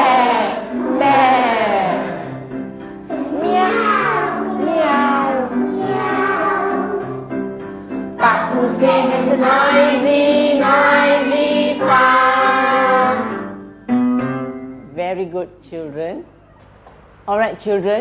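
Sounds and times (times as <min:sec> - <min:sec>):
voices singing children's song: 0:00.0 - 0:07.4, 0:08.2 - 0:13.6
backing music with jingling beat: 0:00.0 - 0:14.9.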